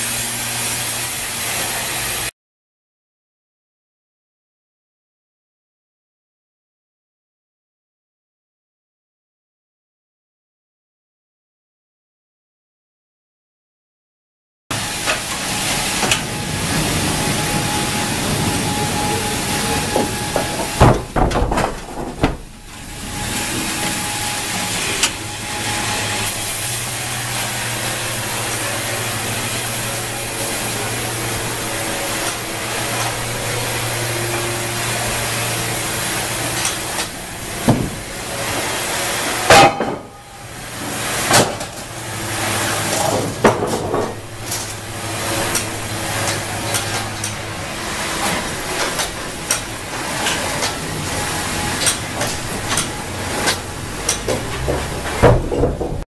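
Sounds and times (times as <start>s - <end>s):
sawmill machinery humming: 0.0s - 2.3s, 14.7s - 56.0s
sharp knocks: 20.0s - 22.6s.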